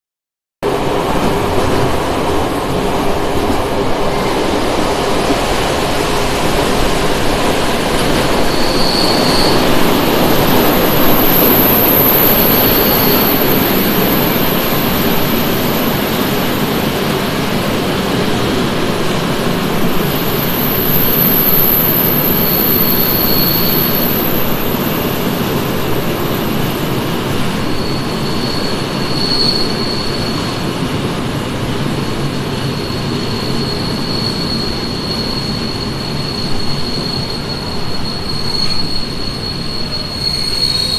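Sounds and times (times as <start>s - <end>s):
train wheels rumbling on rail: 0.6s - 40.9s
high-pitched wheel squeals: 8.0s - 16.2s, 20.0s - 25.4s, 27.5s - 30.6s, 32.6s - 40.9s.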